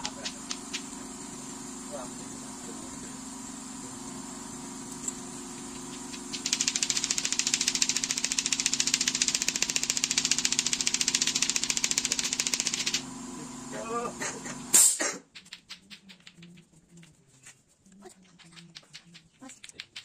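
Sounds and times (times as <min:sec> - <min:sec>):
machine rattling: 0:00.0 - 0:02.1, 0:04.9 - 0:13.1.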